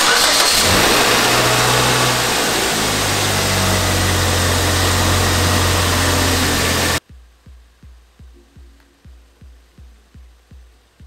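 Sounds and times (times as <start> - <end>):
car engine idling: 0.0 - 7.0.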